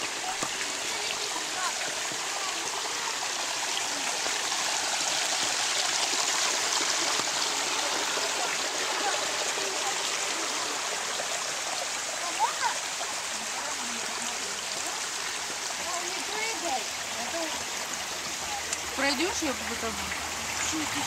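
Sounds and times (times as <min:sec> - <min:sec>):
stream flowing over rocks: 0:00.0 - 0:21.0.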